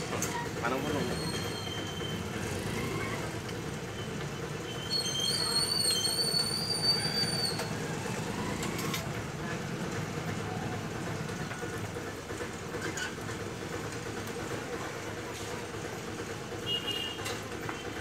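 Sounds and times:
high wavering squeal: 0.9 - 2.3, 4.6 - 7.8.

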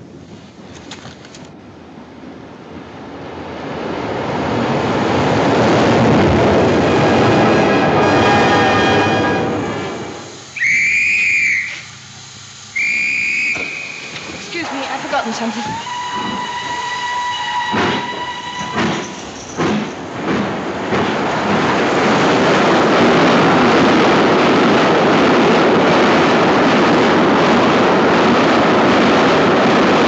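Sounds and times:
steam train passing at speed: 0.0 - 30.0
steam locomotive whistle: 7.6 - 11.9, 12.7 - 19.1
sharp knocks: 18.7 - 21.2.

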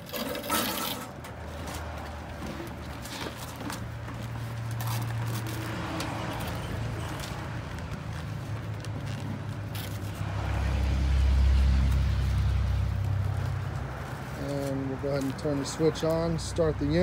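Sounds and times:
vinyl tube rustling: 0.0 - 10.3.

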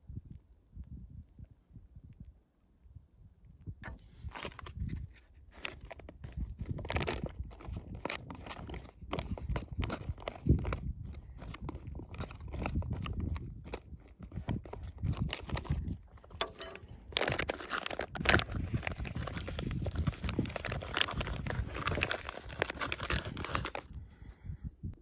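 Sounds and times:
foil pouch crinkling: 4.2 - 24.0.

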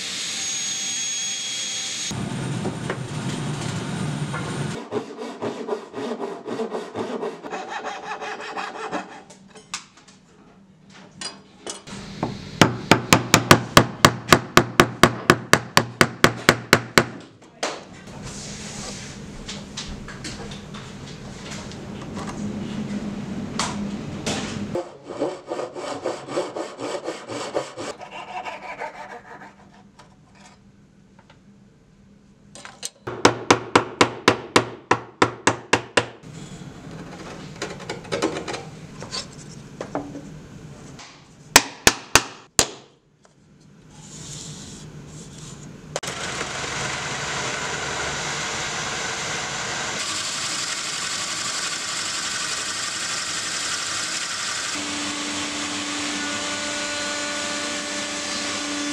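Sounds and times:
drill press boring wood: 46.0 - 58.9.

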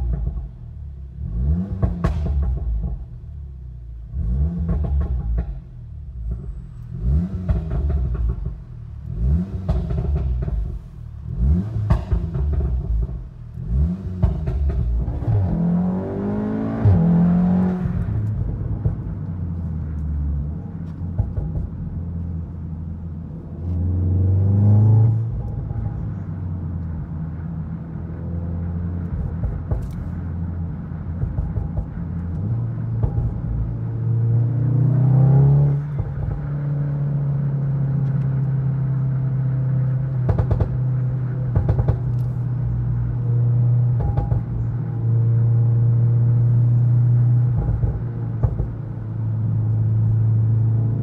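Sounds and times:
car engine revving: 0.0 - 51.0.

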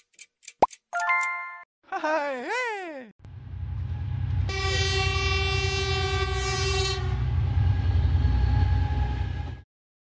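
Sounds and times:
train rumble: 3.3 - 9.6
train horn blast: 4.5 - 9.5.

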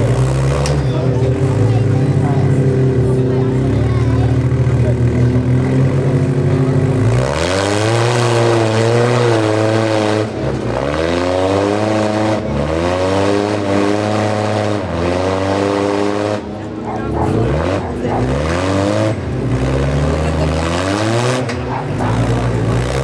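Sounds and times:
buggy engine revving: 0.0 - 23.0.

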